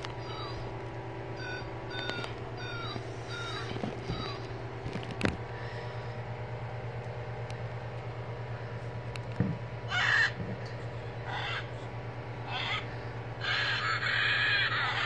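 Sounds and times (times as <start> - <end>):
recorded macaw squawks: 1.4 - 4.4, 9.9 - 10.4, 11.2 - 11.8, 12.5 - 15.0.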